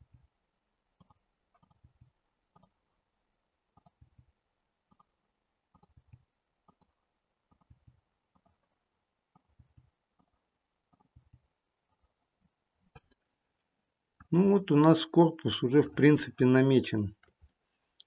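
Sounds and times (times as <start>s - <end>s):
computer mouse clicking: 1.0s - 2.8s, 3.8s - 4.1s, 4.9s - 5.1s, 5.7s - 8.7s, 9.3s - 12.1s.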